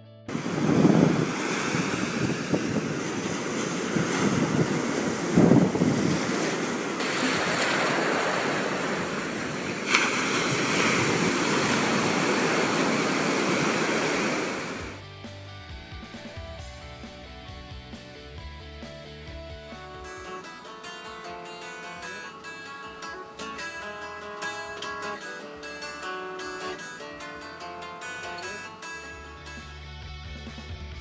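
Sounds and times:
ocean surf breaking: 0.3 - 15.0, 19.7 - 29.6
wind buffeting microphone: 0.3 - 15.0.

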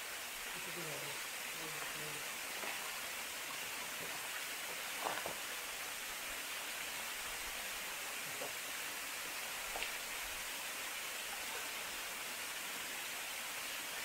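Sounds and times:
running water hiss: 0.0 - 14.0.

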